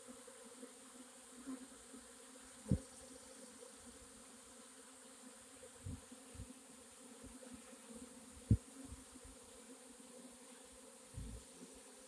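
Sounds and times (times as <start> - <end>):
bee swarm buzzing: 0.0 - 12.0
low thumps: 11.2 - 11.4.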